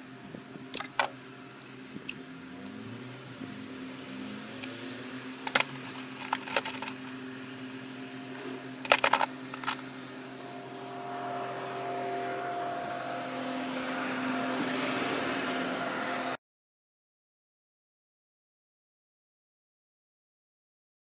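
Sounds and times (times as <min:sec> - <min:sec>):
steady hum with held tones: 0:00.0 - 0:16.4.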